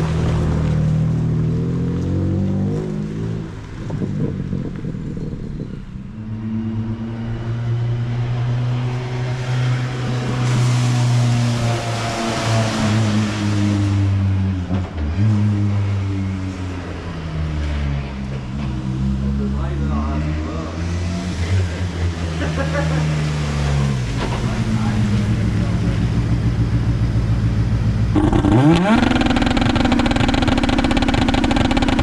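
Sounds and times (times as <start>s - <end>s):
race car engine at high revs: 6.2s - 19.5s, 20.1s - 32.0s.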